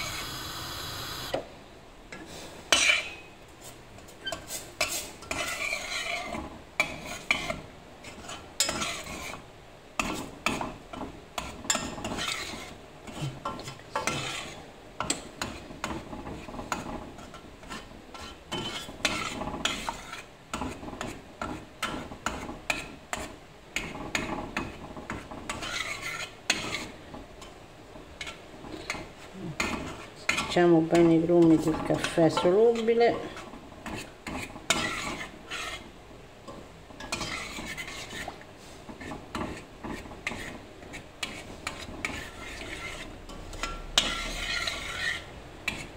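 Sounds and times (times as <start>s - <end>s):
metal spoon scraping steel pot: 4.2s - 9.4s, 11.4s - 15.7s, 25.4s - 27.5s, 29.6s - 35.9s, 37.0s - 45.9s.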